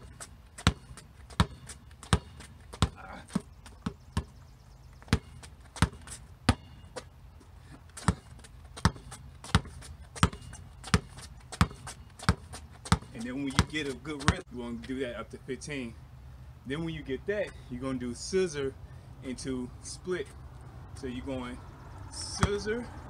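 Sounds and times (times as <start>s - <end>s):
basketball bouncing on concrete: 0.0s - 4.4s, 5.0s - 7.1s, 8.0s - 14.4s, 22.2s - 22.9s.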